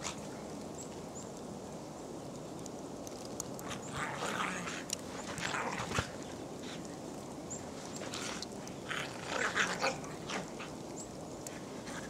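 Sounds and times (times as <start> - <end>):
steady background hiss: 0.0 - 12.0
dog sounds: 8.0 - 10.9.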